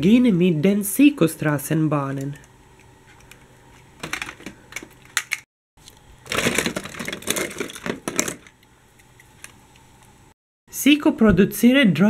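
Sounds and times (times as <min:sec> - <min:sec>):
toy vehicles clattering in plastic box: 0:04.0 - 0:05.4, 0:06.2 - 0:08.6.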